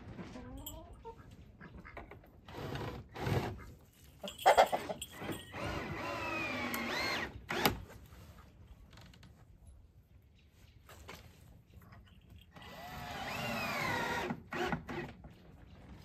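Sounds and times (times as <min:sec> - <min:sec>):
power drill driving a screw: 0:05.5 - 0:07.8, 0:12.6 - 0:15.1.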